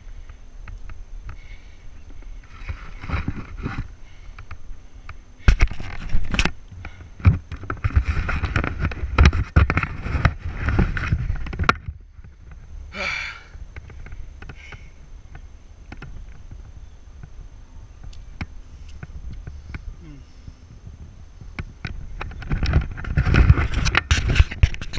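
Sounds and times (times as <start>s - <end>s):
rustling and scraping against bark: 0.0s - 24.9s
hard breathing: 1.3s - 3.0s, 12.9s - 15.0s, 18.7s - 20.8s.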